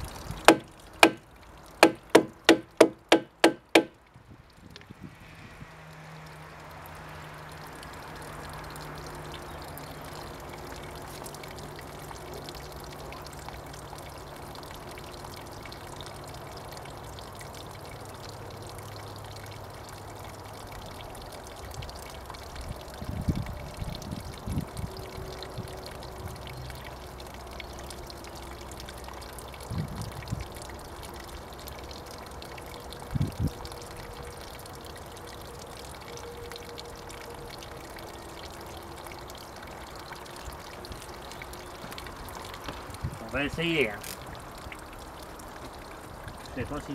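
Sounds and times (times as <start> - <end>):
water pouring and splashing: 0.0 - 46.9.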